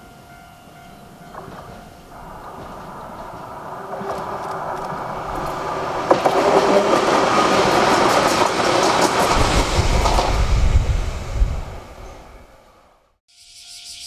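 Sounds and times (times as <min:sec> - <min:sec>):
deep train rumble: 0:00.0 - 0:13.2
train rushing past: 0:01.0 - 0:13.2
train wheels clacking over rail joints: 0:01.3 - 0:10.4.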